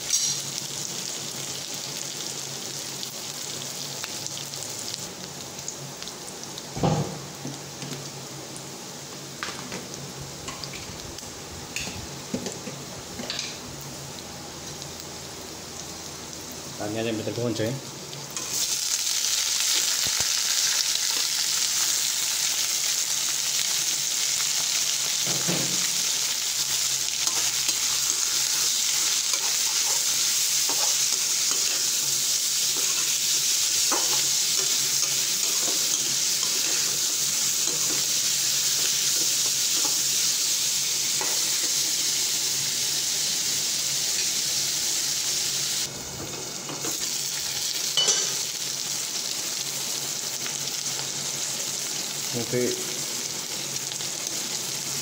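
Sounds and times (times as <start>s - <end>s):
meat sizzling in oil: 0.0s - 55.0s
spatula scraping wok: 26.8s - 40.1s.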